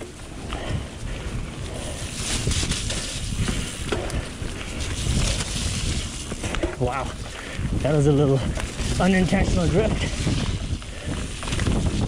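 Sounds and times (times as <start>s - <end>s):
bike tyre noise: 0.0s - 12.0s
wind rushing over microphone: 0.0s - 12.0s
bike knocks and rattles: 2.2s - 6.9s, 8.6s - 12.0s.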